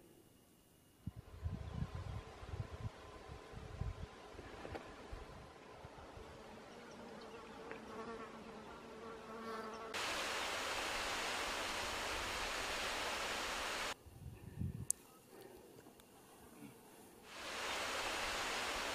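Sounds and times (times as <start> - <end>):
faint insect hum: 0.0 - 18.9
loud steady hiss: 10.0 - 14.2, 17.2 - 18.9.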